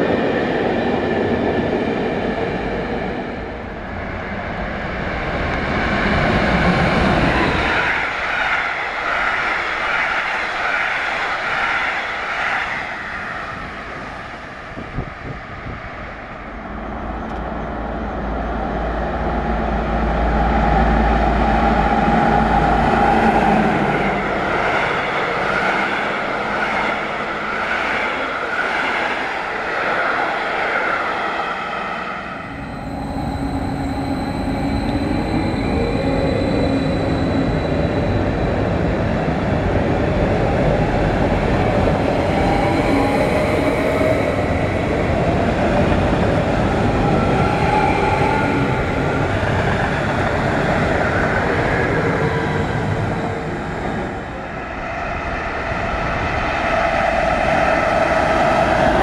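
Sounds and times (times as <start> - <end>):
electric train whine: 0.0 - 59.0
diesel locomotive engine rumble: 13.3 - 28.6, 31.8 - 59.0.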